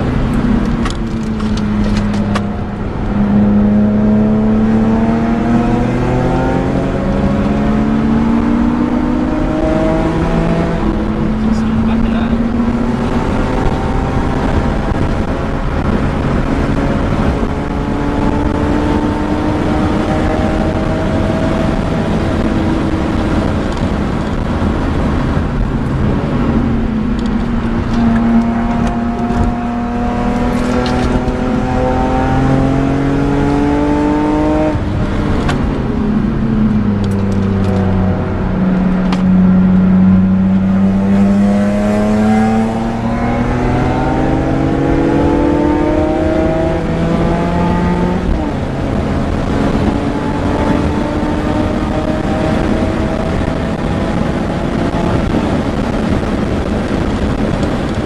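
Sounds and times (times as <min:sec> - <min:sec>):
car engine revving: 0:00.0 - 0:58.0.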